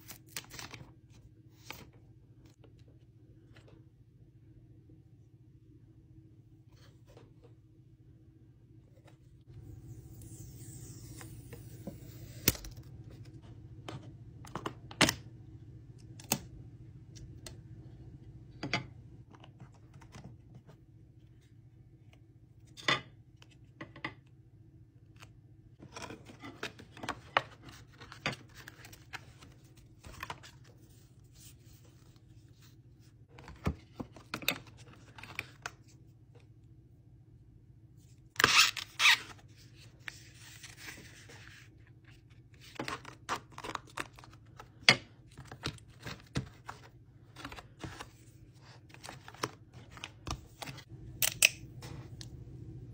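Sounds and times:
plastic and cardboard rustling: 39.4 - 50.9
low hum: 50.9 - 52.9.

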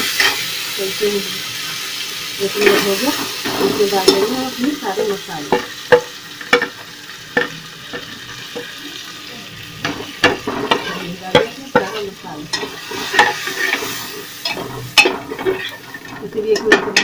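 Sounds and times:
onions sizzling in oil: 0.0 - 17.0
spoon scraping and clinking on pot: 10.2 - 17.0.

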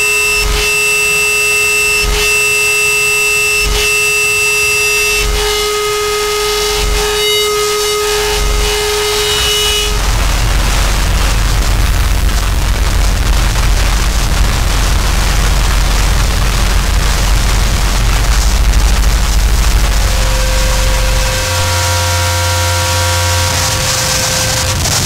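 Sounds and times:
electronic drone with shrill overtones: 0.0 - 25.0
rumbling noise wall: 5.0 - 25.0
low pulsing thump: 9.7 - 22.0.

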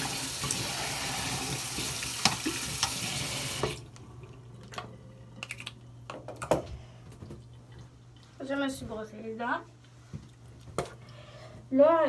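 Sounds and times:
tap water splashing into sink: 0.0 - 3.8.

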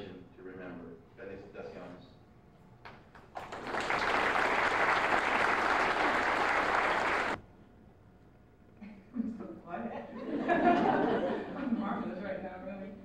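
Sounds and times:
audience applauding: 3.2 - 7.4.

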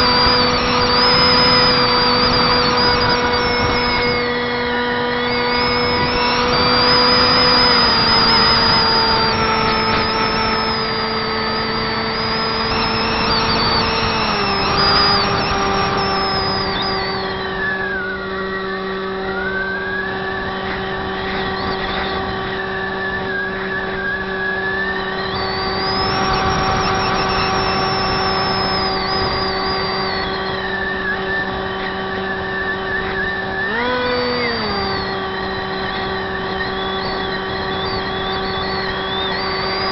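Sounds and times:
electric motor buzzing whine: 0.0 - 39.9
faint high whine: 0.0 - 39.9.

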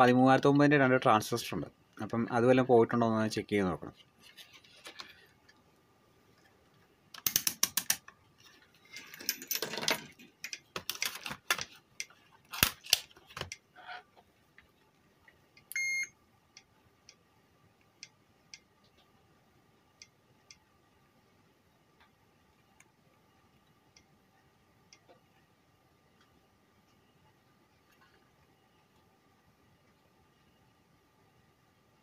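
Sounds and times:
circuit board handling clicks and knocks: 7.2 - 8.1.

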